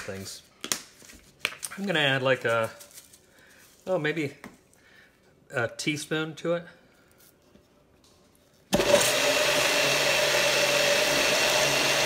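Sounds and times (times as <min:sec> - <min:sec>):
blender running: 0:08.7 - 0:12.0.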